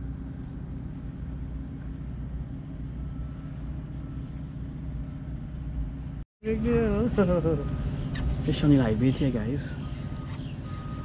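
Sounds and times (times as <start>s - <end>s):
ship engine humming: 0.0s - 11.0s.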